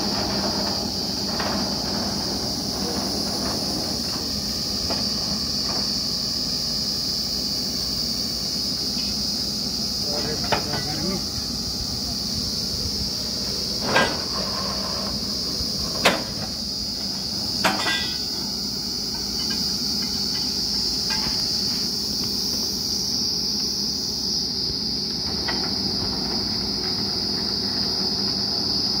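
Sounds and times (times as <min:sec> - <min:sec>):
metal clanks: 0:00.0 - 0:06.0, 0:10.1 - 0:11.4, 0:13.7 - 0:21.9
engine low rumble: 0:00.0 - 0:29.0.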